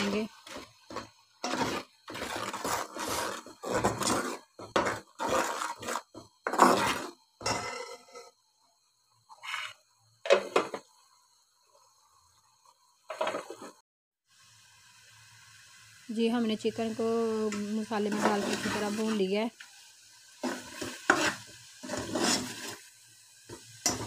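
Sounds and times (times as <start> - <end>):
metal spoon scraping a pot: 0.4 - 8.3, 20.4 - 22.9.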